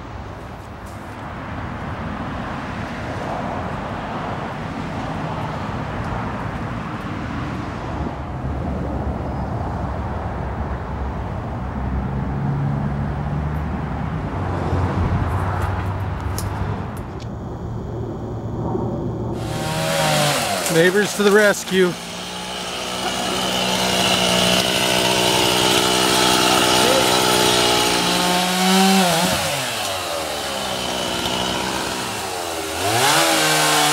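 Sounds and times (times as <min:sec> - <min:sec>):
outdoor noise: 0:00.0 - 0:33.9.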